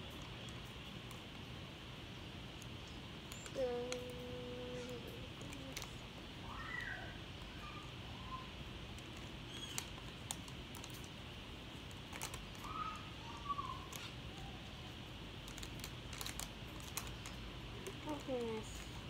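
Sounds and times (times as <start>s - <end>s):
candy wrapper crinkling: 3.3s - 6.0s, 8.9s - 13.1s, 15.3s - 19.0s.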